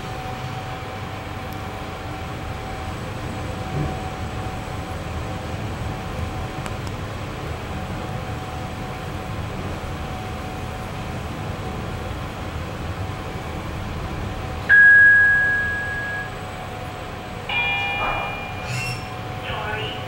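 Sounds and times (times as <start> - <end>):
elevator humming: 0.0 - 20.0
steady higher tones: 14.7 - 16.8, 17.4 - 20.0
elevator bell ding: 14.7 - 20.0.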